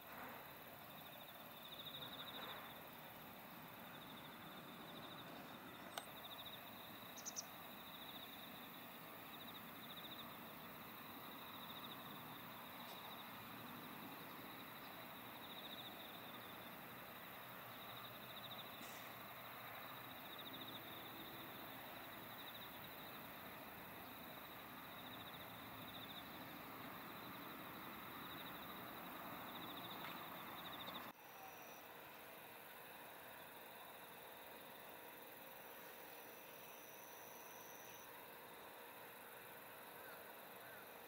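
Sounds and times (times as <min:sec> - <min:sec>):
faint insect trill: 0:00.0 - 0:41.0.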